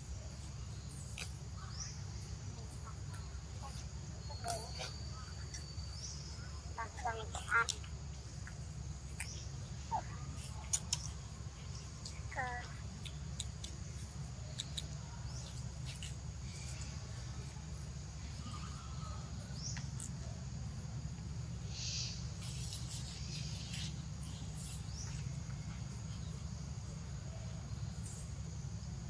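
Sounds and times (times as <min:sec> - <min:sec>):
insect and bird chirps: 0:00.0 - 0:29.0.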